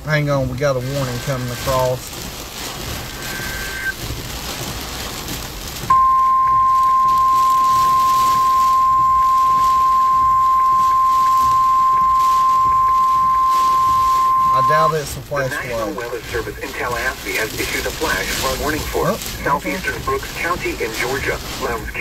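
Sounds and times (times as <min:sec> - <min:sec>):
rain hiss: 0:00.0 - 0:22.0
loud steady alarm beep: 0:03.2 - 0:03.9, 0:05.9 - 0:15.0.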